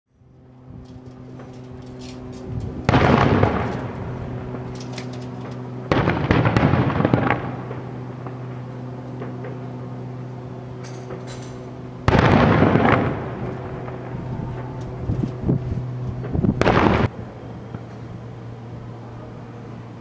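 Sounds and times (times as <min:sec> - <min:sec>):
low hum: 0:00.1 - 0:20.0
distant firework bursts: 0:02.8 - 0:18.4.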